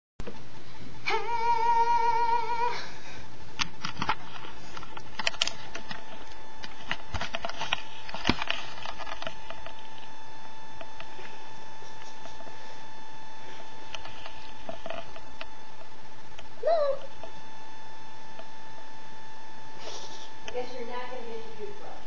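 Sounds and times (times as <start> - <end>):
faint steady tone: 0.5 - 22.0
webcam clicks and knocks: 3.6 - 10.0.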